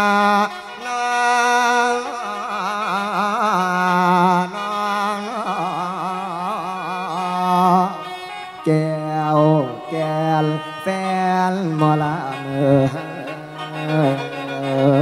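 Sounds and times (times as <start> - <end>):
mouth organ drone: 8.6 - 15.0.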